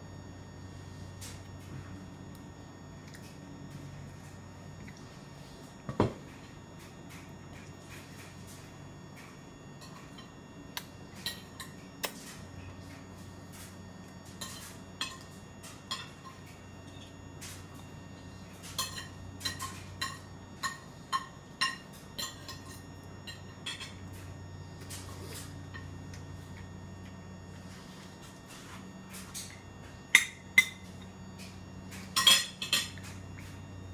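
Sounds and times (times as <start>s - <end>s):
clinks against ceramic bowl: 32.1s - 33.0s.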